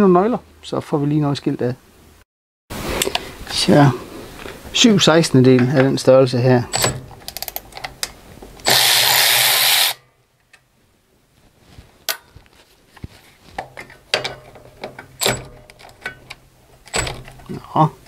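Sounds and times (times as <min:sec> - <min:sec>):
tool clicks and clinks: 0:06.7 - 0:10.0, 0:13.8 - 0:17.4
cordless ratchet running: 0:08.7 - 0:10.0.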